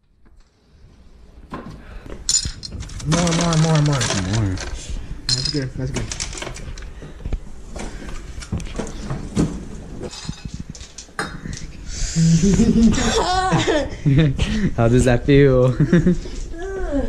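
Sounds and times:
ice cubes clicking and rattling: 2.3s - 6.9s.

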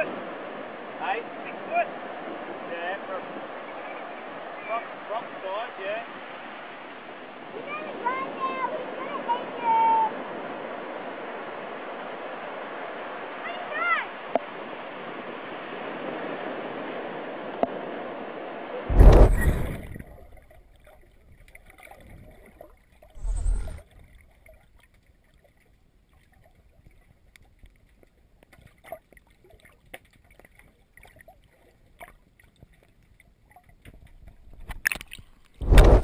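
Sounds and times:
muffled underwater rushing water: 0.0s - 36.0s
low thump: 18.9s - 20.1s, 35.6s - 36.0s.

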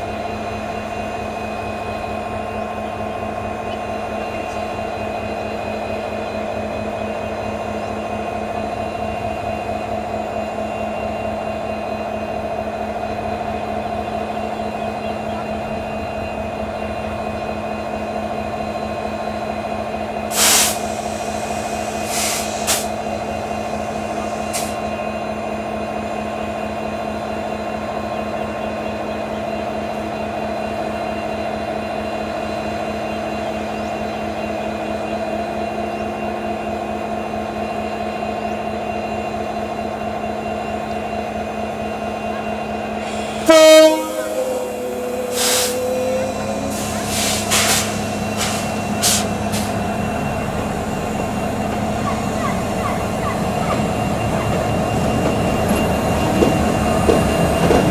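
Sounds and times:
diesel locomotive engine idling: 0.0s - 57.9s
compressed air hiss: 20.3s - 22.9s, 43.0s - 43.5s, 45.2s - 45.9s, 46.7s - 49.8s.

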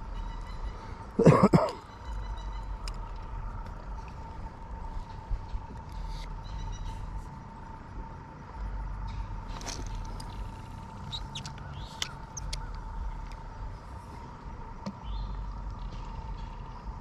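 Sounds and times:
faint steady high tone: 0.0s - 7.6s.

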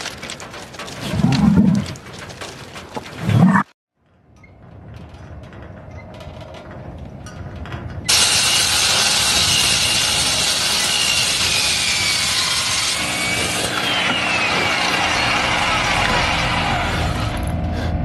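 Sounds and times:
low hum: 13.0s - 18.0s.

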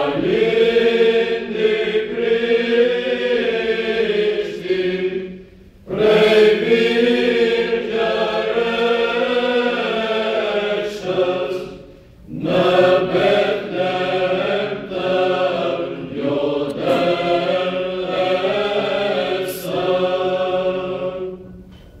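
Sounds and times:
choir chanting a cappella: 0.0s - 21.7s
low held drone note: 16.7s - 18.0s.

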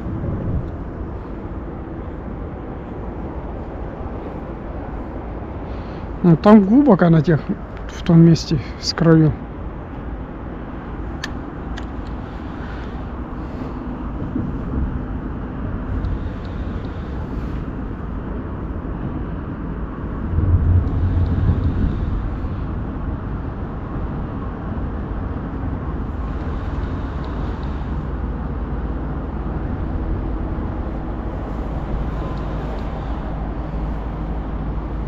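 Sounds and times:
low motor rumble: 0.0s - 35.0s.

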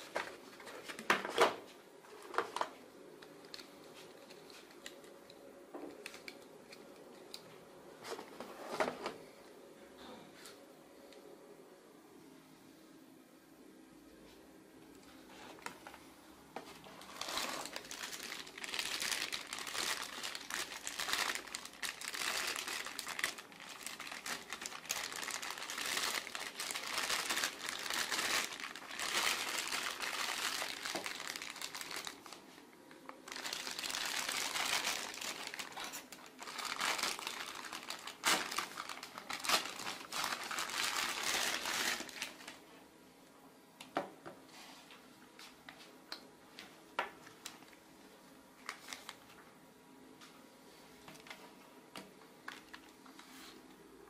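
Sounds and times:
plastic bags crinkling: 16.7s - 42.6s, 48.6s - 49.4s, 52.4s - 53.2s.

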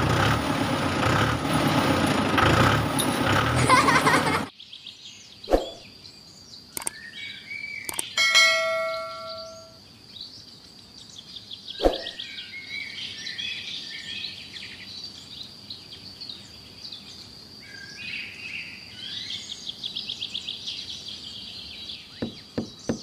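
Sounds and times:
birds chirping and trilling: 2.9s - 23.0s
steady high-pitched tone: 8.2s - 9.8s.

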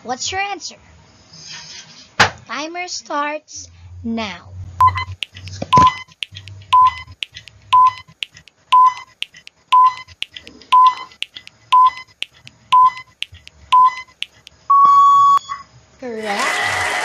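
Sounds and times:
faint ticking: 4.8s - 14.7s
countdown timer beeping: 4.8s - 15.4s.

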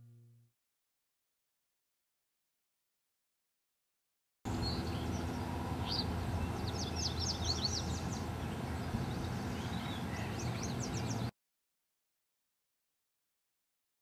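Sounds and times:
birds chirping: 4.5s - 11.3s
low outdoor rumble: 4.5s - 11.3s.

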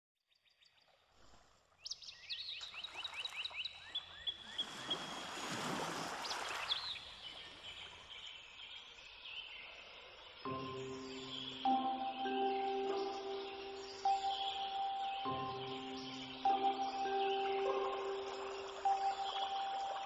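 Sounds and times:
songbird chirping: 1.8s - 20.0s
soft music with bell-like tones: 10.5s - 20.0s.

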